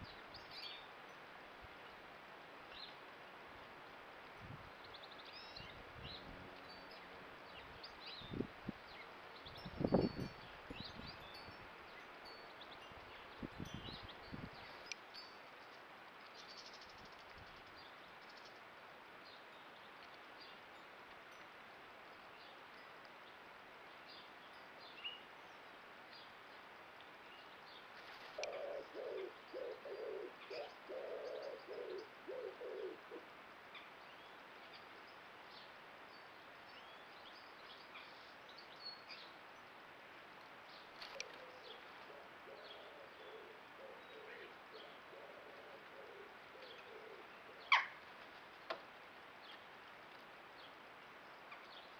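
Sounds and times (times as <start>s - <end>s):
pigeon cooing: 28.4s - 33.2s, 41.1s - 47.9s.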